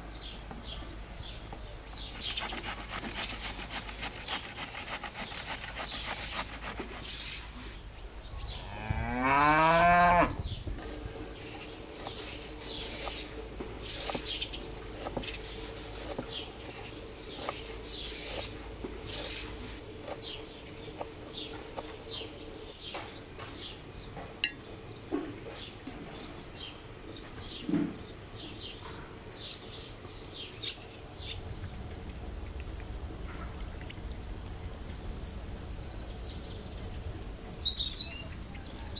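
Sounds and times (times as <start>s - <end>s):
small birds chirping: 0.0s - 8.7s, 10.4s - 38.9s
cow mooing: 8.6s - 10.4s.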